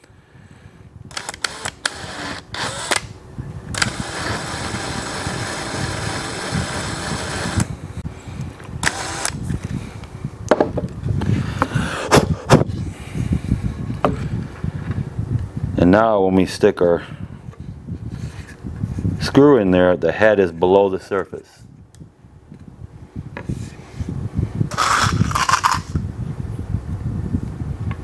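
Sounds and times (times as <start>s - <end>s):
cordless drill running: 1.1s - 3.1s, 3.7s - 7.7s, 8.8s - 9.4s.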